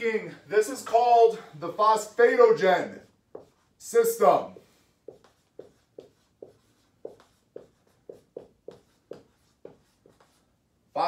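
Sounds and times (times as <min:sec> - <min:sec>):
marker writing on whiteboard: 0:01.7 - 0:10.6.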